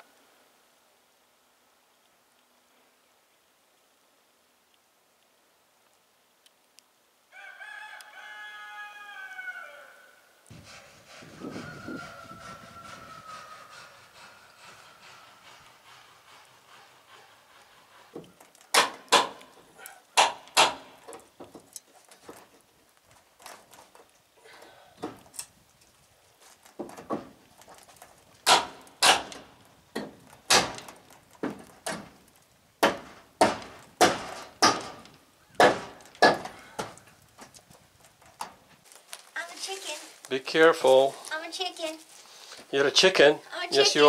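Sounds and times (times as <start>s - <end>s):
sharp clicks and knocks: 18.1s - 19.6s, 20.2s - 22.6s, 26.6s - 38.6s.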